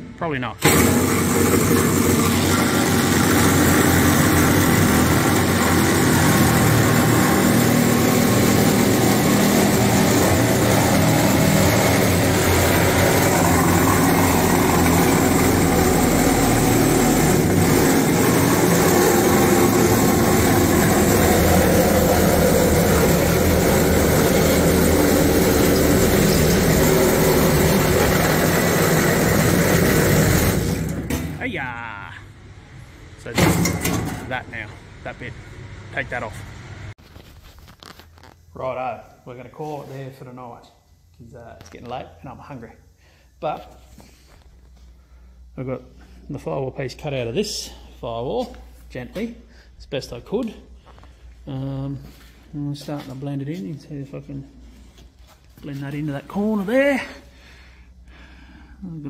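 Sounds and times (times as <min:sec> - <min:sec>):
reciprocating saw cutting sheet steel: 0:00.6 - 0:31.4.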